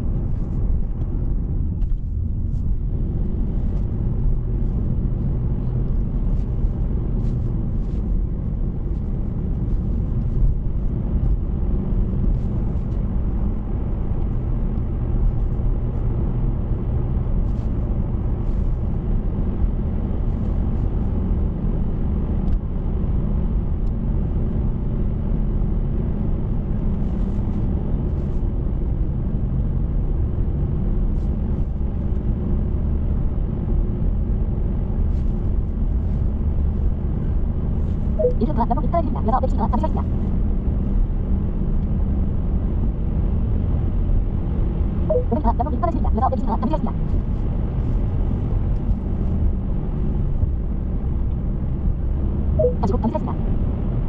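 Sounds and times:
car road and engine rumble: 0.0s - 54.0s
faint light ticks: 22.4s - 22.6s.

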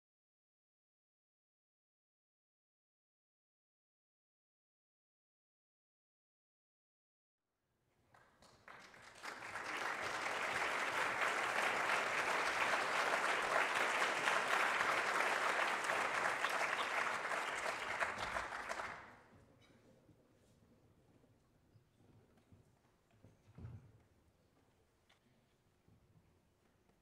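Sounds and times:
audience applauding: 8.2s - 19.2s.

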